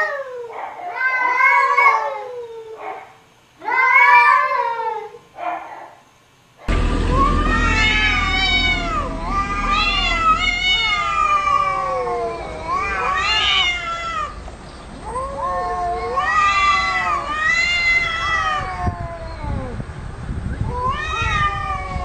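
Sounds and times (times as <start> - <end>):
cats yowling: 0.0 - 5.2, 15.1 - 19.7, 20.7 - 22.0.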